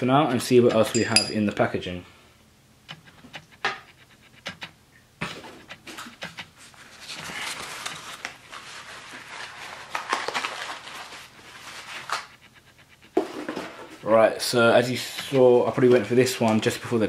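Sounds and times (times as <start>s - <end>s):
packaging rustling: 6.6s - 12.5s.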